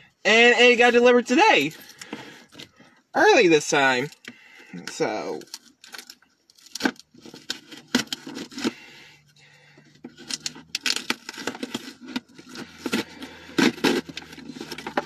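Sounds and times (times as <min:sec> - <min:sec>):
packaging scraping and tearing: 0:05.4 - 0:09.0, 0:10.1 - 0:15.0.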